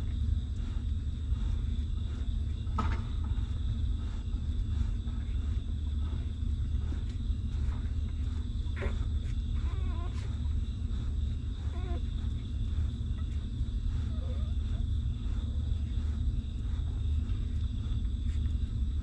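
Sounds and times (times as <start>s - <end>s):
steady low rumble: 0.0s - 19.0s
puppies whimpering: 9.6s - 10.4s, 11.0s - 12.1s.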